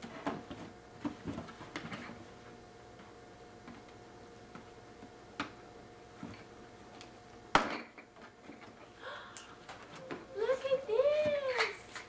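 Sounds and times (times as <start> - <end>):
faint background hum: 0.0 - 12.0.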